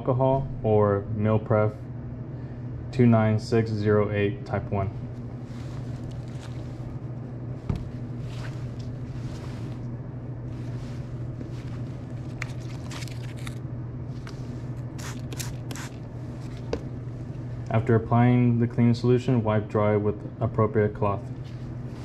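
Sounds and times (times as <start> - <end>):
steady low hum: 0.0 - 22.0
spray bottle squirts: 15.0 - 16.0.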